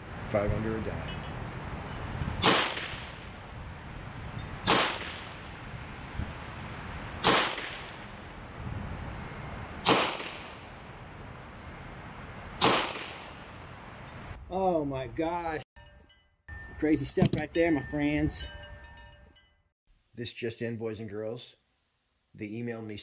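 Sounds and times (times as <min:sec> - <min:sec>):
air pistol shots: 0:02.4 - 0:03.2, 0:04.6 - 0:05.4, 0:07.2 - 0:08.0, 0:09.8 - 0:10.6, 0:12.6 - 0:13.4.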